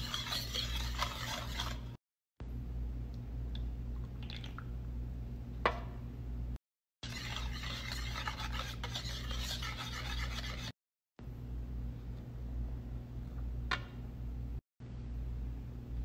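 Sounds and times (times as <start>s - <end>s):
whisk beating in ceramic bowl: 0.0s - 2.0s, 7.0s - 10.7s
low steady hum: 2.4s - 16.0s.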